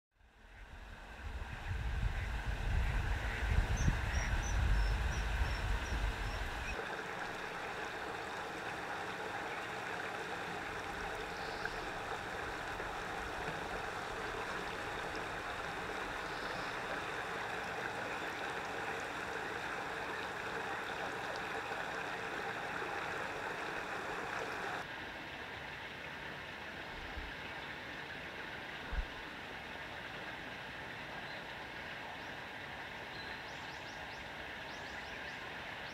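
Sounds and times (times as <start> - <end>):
flowing water rushing: 0.3 - 33.2
wind on microphone: 0.4 - 6.8.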